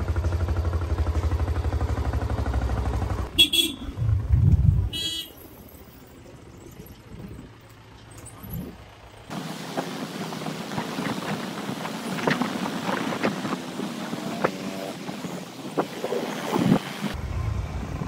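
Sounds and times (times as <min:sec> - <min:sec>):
traffic noise: 0:00.0 - 0:18.0
wind on microphone: 0:04.0 - 0:05.0.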